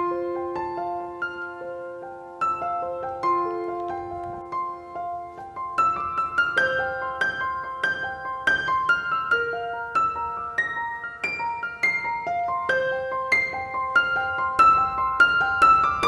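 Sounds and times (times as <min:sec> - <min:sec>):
gentle piano melody: 0:00.0 - 0:16.0.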